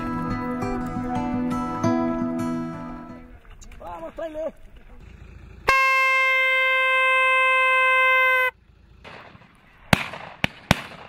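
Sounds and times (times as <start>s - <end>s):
hunting horn note: 0.0s - 3.3s, 5.7s - 8.5s
shotgun shots: 9.0s - 11.0s.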